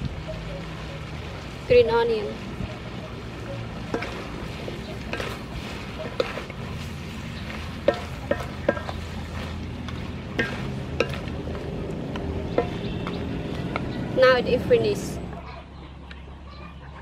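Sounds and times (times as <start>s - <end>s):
stir fry sizzling in a wok: 0.0s - 14.7s
spatula knocking against pan: 7.8s - 9.0s.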